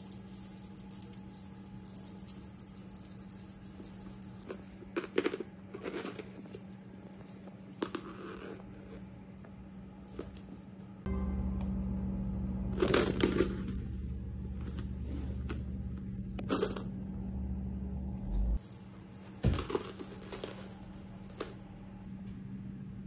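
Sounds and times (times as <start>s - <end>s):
metal jingling and rattling: 0.0s - 11.0s, 18.6s - 21.8s.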